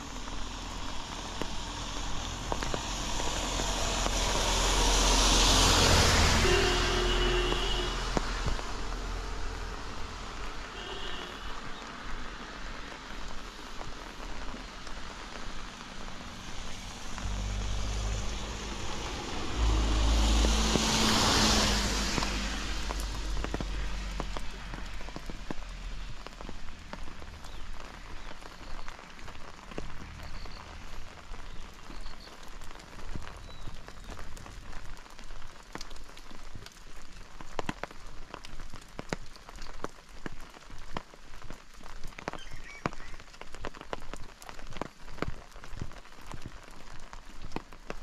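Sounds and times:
rain falling: 0:00.0 - 0:48.0
raindrops ticking: 0:00.0 - 0:48.0
passing vehicle: 0:00.2 - 0:10.4, 0:15.8 - 0:26.0.

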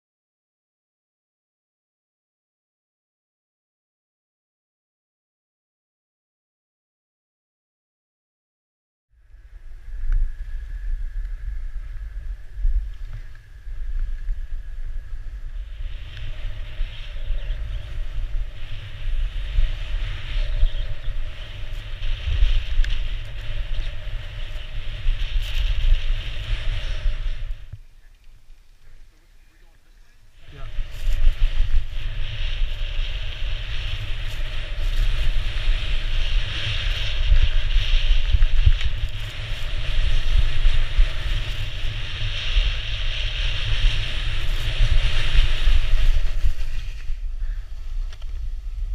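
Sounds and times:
wind buffeting microphone: 0:09.2 - 0:48.9
skis carving across snow: 0:09.7 - 0:48.9.

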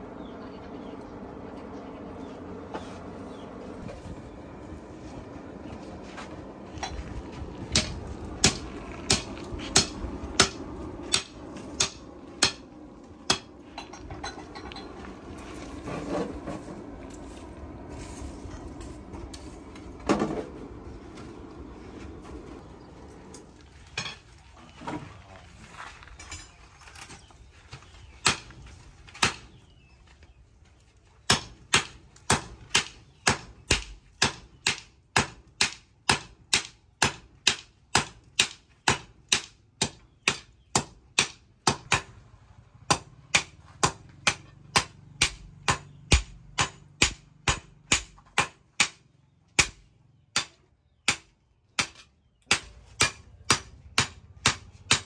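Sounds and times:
hammers striking steel on anvil: 0:07.7 - 0:12.6, 0:13.3 - 0:14.9, 0:28.2 - 0:28.6, 0:29.2 - 0:29.5, 0:31.3 - 0:42.2, 0:42.9 - 0:49.0, 0:49.6 - 0:55.0.

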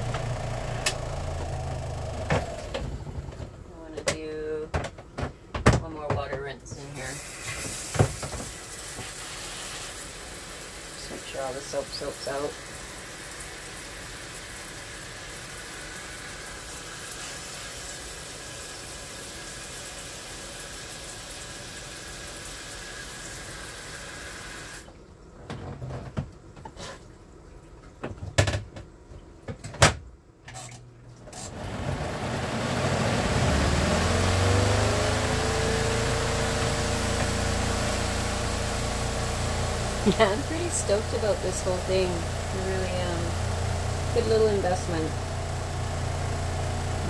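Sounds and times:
spin motor whine and hum: 0:00.0 - 0:03.4, 0:31.6 - 0:47.0
washing machine running: 0:00.0 - 0:04.0, 0:06.9 - 0:26.6, 0:27.3 - 0:47.0
knocks and clunks of tub: 0:27.8 - 0:30.0.

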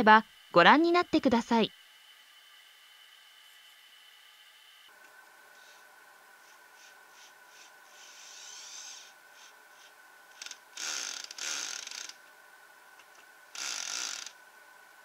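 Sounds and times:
drill-driver driving screws: 0:07.6 - 0:09.5, 0:10.3 - 0:12.2, 0:13.6 - 0:14.3.

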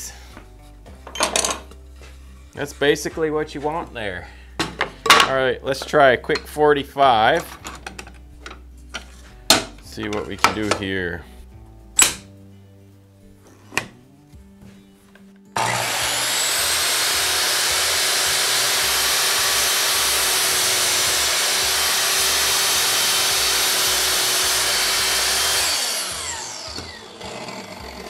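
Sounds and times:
miter saw cutting wood: 0:15.6 - 0:28.0
saw blade winding down: 0:15.6 - 0:28.0.

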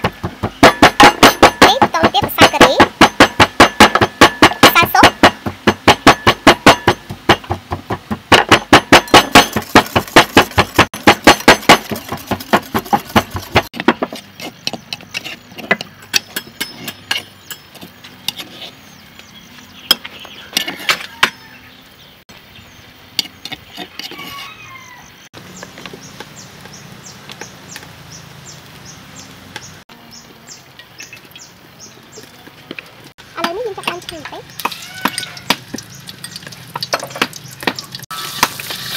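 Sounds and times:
kitchen utensils knocking: 0:00.4 - 0:14.1.

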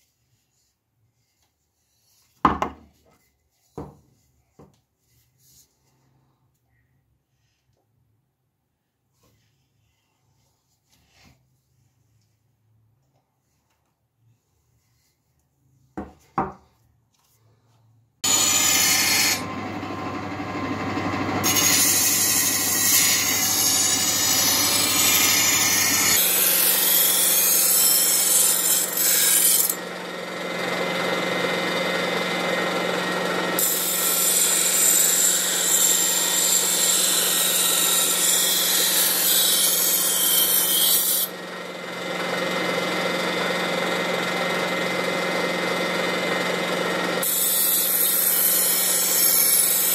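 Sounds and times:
grinder motor hum: 0:18.2 - 0:49.9.

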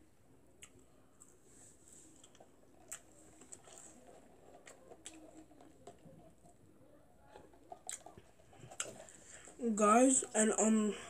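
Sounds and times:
mouth clicks and lip smacks: 0:07.8 - 0:09.0.

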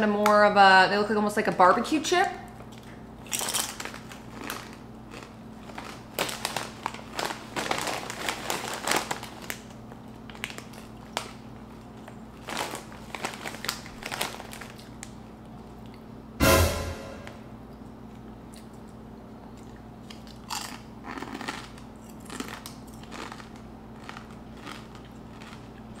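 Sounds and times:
chip bag crinkling: 0:02.8 - 0:15.3, 0:20.2 - 0:26.0.

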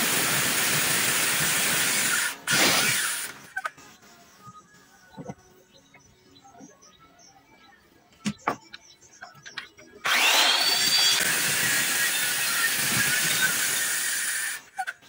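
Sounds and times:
circular saw cutting wood: 0:00.0 - 0:03.7, 0:10.0 - 0:15.0.

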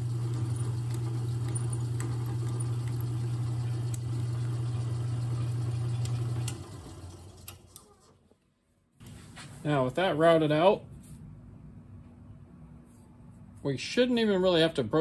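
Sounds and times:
drill press motor humming: 0:00.0 - 0:08.2.

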